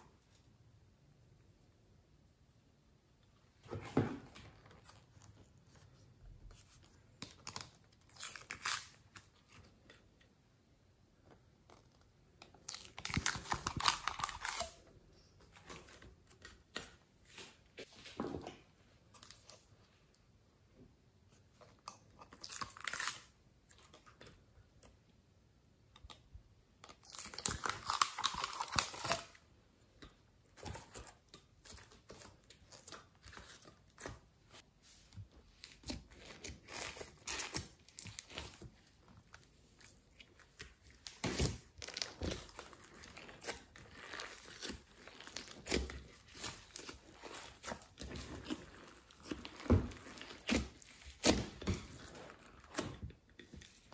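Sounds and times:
slime tearing and rustling: 0:35.6 - 0:53.0.

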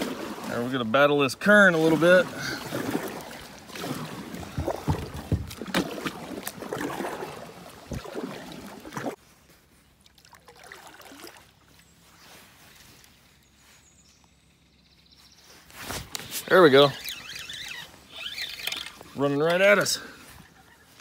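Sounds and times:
paddle splashing in water: 0:00.0 - 0:09.2, 0:10.0 - 0:11.7
faint water sounds: 0:00.0 - 0:14.6, 0:15.2 - 0:21.0
knocks and clatter: 0:04.4 - 0:05.9.

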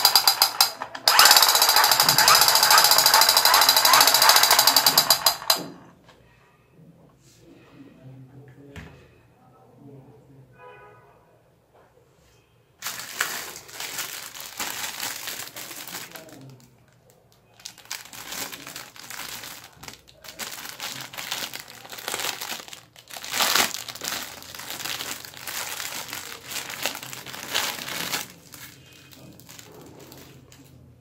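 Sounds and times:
plastic bag crinkling: 0:00.2 - 0:05.6, 0:12.8 - 0:30.9.

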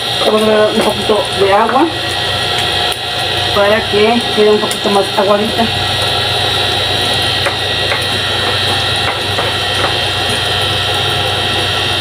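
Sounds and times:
stone pestle knocking in mortar: 0:07.4 - 0:10.1.

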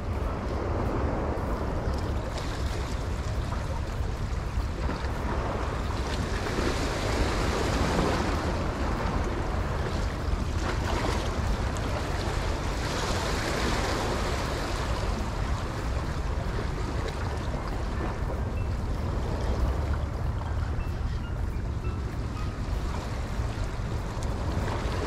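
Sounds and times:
wind rumbling on microphone: 0:00.0 - 0:25.0
waves washing against rocks: 0:00.3 - 0:18.4.

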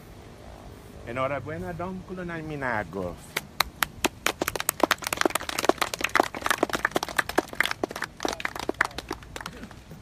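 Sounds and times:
small crowd clapping: 0:03.3 - 0:10.0.

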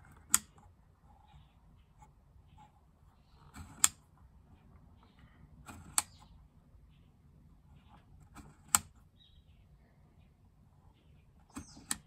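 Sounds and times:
rotary dial clicking: 0:00.0 - 0:00.8, 0:03.3 - 0:04.2, 0:05.6 - 0:06.3, 0:07.9 - 0:09.1, 0:11.4 - 0:12.0.

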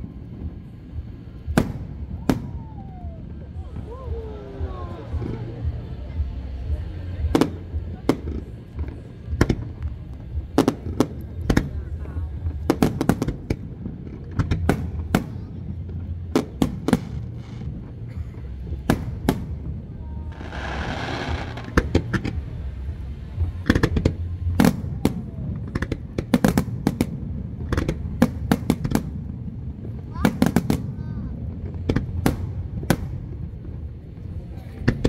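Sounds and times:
fireworks bursting with sharp bangs: 0:00.0 - 0:35.0
low rumble: 0:00.0 - 0:35.0
fireworks hissing: 0:06.4 - 0:24.7.

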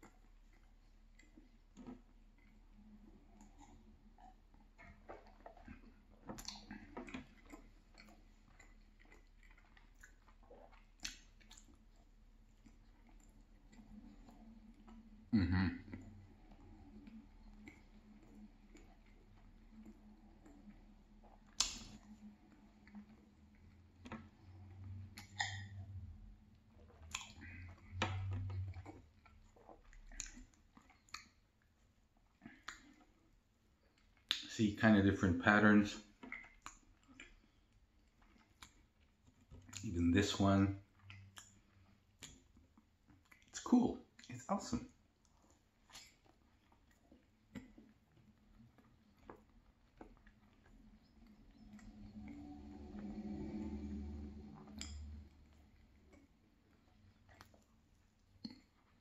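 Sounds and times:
wet mouth clicks: 0:00.0 - 0:26.0, 0:26.9 - 0:31.4, 0:32.3 - 0:33.1, 0:34.0 - 0:34.5, 0:36.2 - 0:38.8, 0:39.6 - 0:39.9, 0:45.8 - 0:57.6
faint chewing: 0:00.0 - 0:59.0
wet mouth smacks and clicks: 0:06.3 - 0:11.8, 0:21.4 - 0:22.2, 0:25.2 - 0:25.8, 0:27.0 - 0:28.8, 0:29.8 - 0:31.4, 0:32.4 - 0:33.0, 0:34.2 - 0:34.5, 0:39.6 - 0:39.9, 0:45.9 - 0:46.3, 0:54.6 - 0:55.0
man swallowing: 0:15.3 - 0:16.0.

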